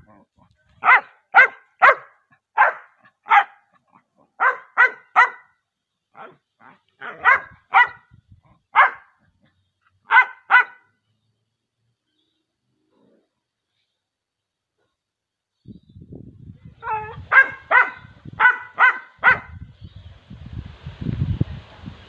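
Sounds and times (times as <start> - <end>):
dog barking: 0.8 - 5.6, 6.2 - 8.1, 8.7 - 9.2, 10.0 - 10.9, 16.8 - 19.6.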